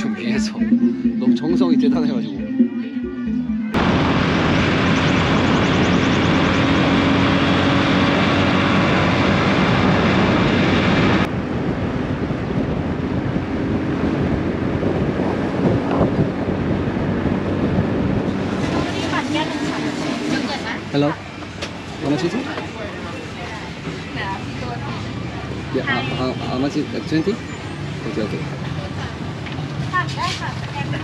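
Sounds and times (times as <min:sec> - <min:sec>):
wind rushing over microphone: 0:03.7 - 0:22.0.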